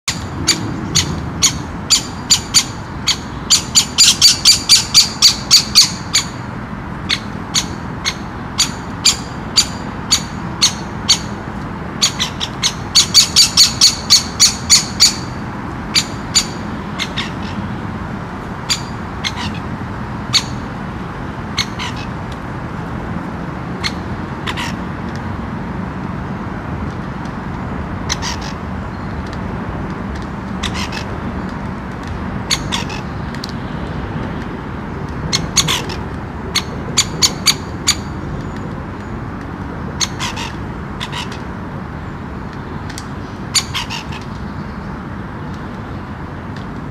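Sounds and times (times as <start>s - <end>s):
woodpeckers calling: 0.1s - 11.4s, 12.0s - 17.7s, 18.6s - 19.7s, 30.6s - 31.1s, 35.3s - 38.2s.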